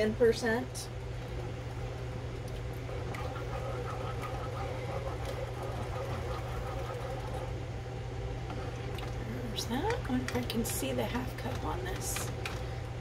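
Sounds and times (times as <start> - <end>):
low appliance hum: 0.0 - 13.0.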